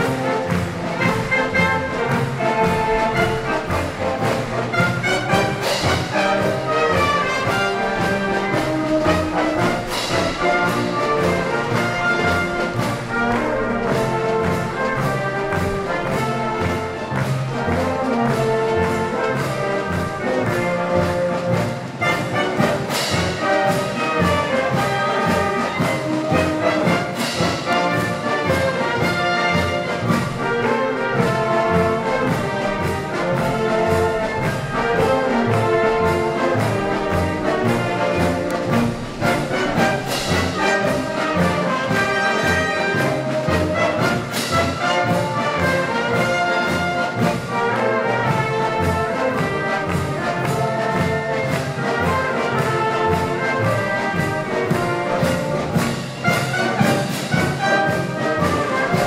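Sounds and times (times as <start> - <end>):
wind band playing: 0.0 - 59.0.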